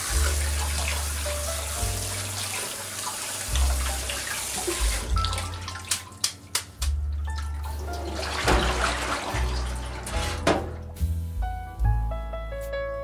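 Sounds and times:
water drips: 0.0 - 10.0
tap water splashing into pot: 0.0 - 10.7.

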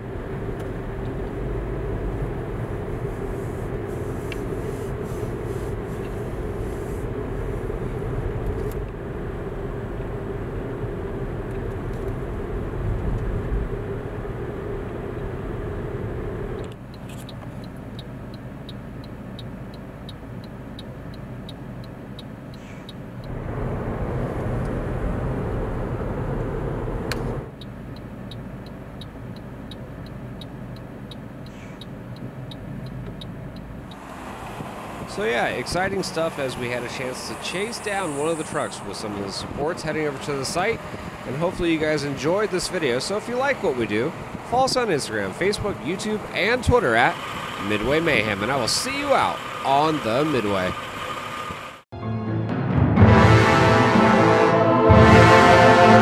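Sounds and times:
car engine and road noise: 0.0 - 51.9
turn signal ticking: 0.2 - 23.4, 27.1 - 38.0.

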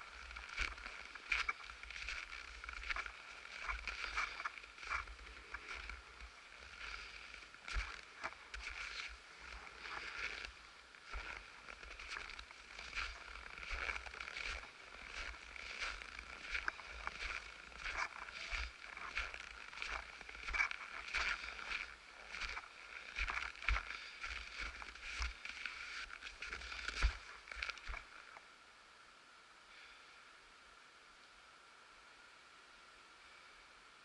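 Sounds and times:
footsteps crunching in snow: 0.0 - 28.4.

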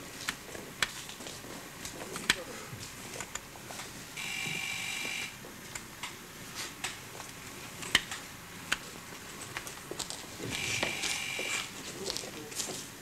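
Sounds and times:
electric buzzer: 4.2 - 5.4, 10.4 - 11.7.

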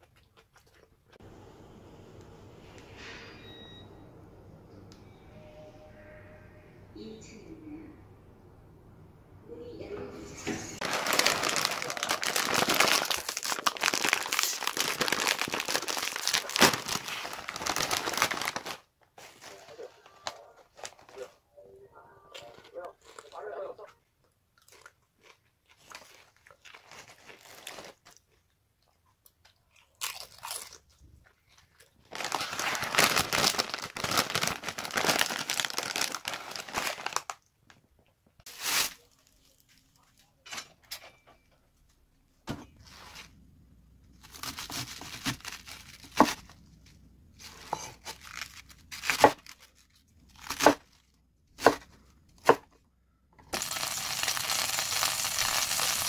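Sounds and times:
low steady hum: 1.2 - 10.8
foil chip bag crinkling: 10.8 - 21.2, 25.7 - 28.4, 31.7 - 37.5, 44.1 - 46.6, 47.4 - 51.2, 53.5 - 56.0.

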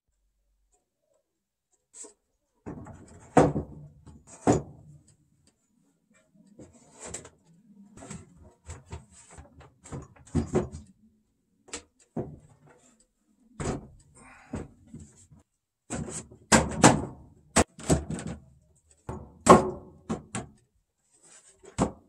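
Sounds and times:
wood boards knocking and thudding: 2.6 - 4.8, 8.7 - 10.9, 12.1 - 12.5, 15.9 - 18.4, 19.1 - 20.6, 21.6 - 22.0.

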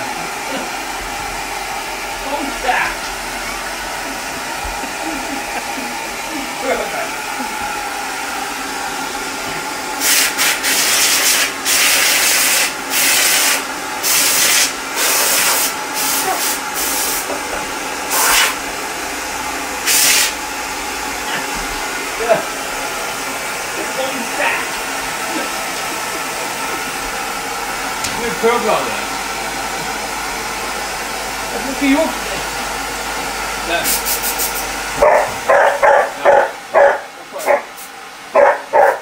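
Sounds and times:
vacuum cleaner running: 0.0 - 39.0
loud hiss bursts: 10.0 - 17.3, 19.8 - 20.4, 33.7 - 34.8.

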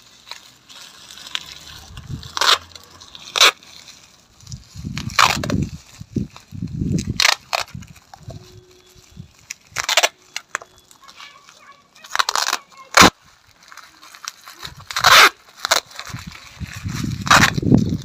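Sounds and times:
packing tape ripping off roll: 0.0 - 18.0
plastic wrap crinkling: 0.0 - 18.0.

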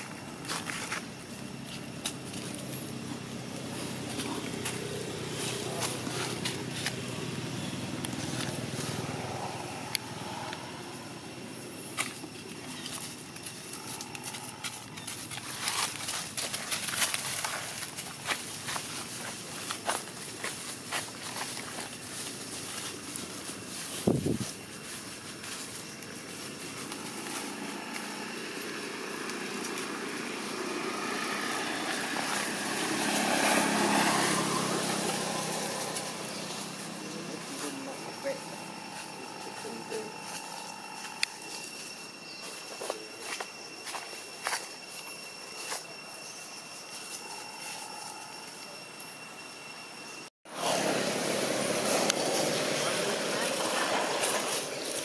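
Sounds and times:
vehicle engine rumble: 0.0 - 46.2
footsteps crackling dry leaves: 0.0 - 48.6, 50.5 - 55.0
vehicle engine passing: 2.2 - 11.8, 26.7 - 41.6, 50.5 - 55.0.

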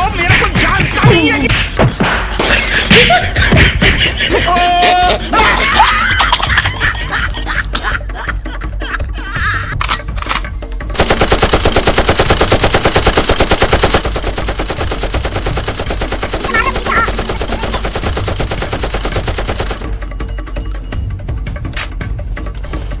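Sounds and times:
rapid automatic gunfire: 11.0 - 20.0.

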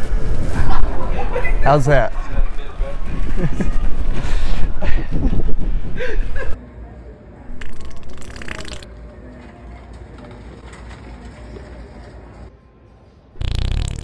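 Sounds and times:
fake fart blown into a cup: 13.4 - 14.0.

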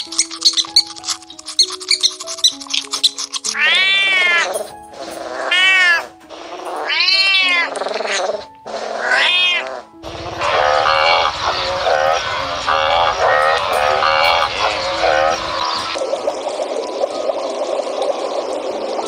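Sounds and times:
quick high clicking chirps: 0.0 - 4.5
background music: 0.0 - 19.0
cat meowing: 3.5 - 4.6, 5.2 - 16.0
steady noisy outdoor sound: 10.0 - 19.0.

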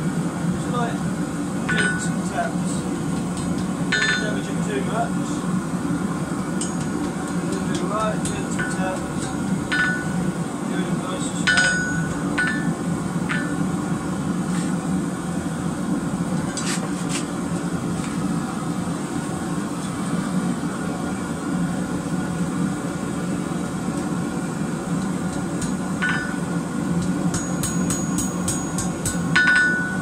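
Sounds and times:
gas forge burner running: 0.0 - 30.0
hammer blows on anvil: 1.7 - 2.3, 3.9 - 4.5, 6.6 - 10.2, 11.4 - 13.6, 25.6 - 26.5, 27.3 - 30.0.

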